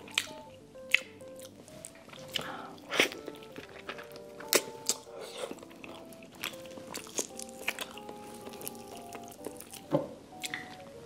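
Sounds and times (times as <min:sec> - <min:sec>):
soft background music: 0:00.0 - 0:11.0
biting and chewing clicks: 0:02.1 - 0:10.8.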